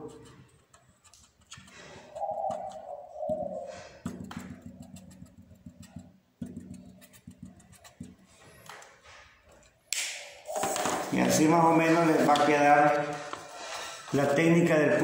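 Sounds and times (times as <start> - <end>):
marker tapping on paper: 0.0 - 8.9, 10.0 - 11.1.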